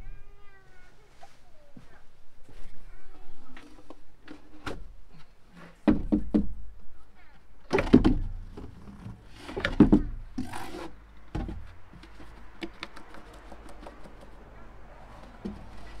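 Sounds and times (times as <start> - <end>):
thump: 5.8 - 6.5, 7.7 - 8.7, 9.6 - 10.2, 11.3 - 11.7
knocks on metal bin: 7.7 - 8.6
metal bin scraping: 8.2 - 12.6.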